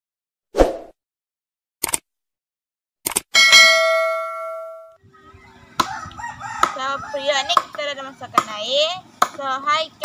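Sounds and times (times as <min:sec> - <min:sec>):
bright bell chime: 0:03.4 - 0:05.0.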